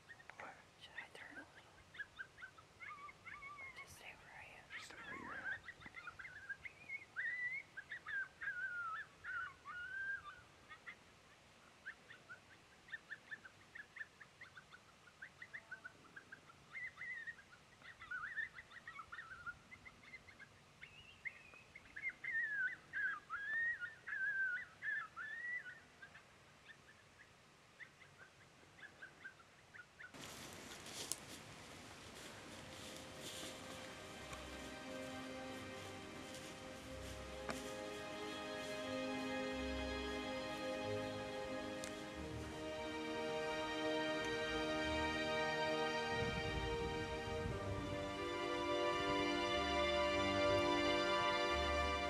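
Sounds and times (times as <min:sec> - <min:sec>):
coyotes howling and yipping: 0:01.8 - 0:27.2, 0:30.9 - 0:43.9.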